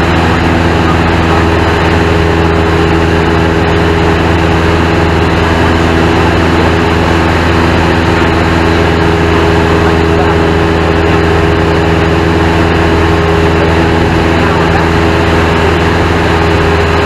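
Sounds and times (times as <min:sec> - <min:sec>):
airplane engine drone: 0:00.0 - 0:17.0.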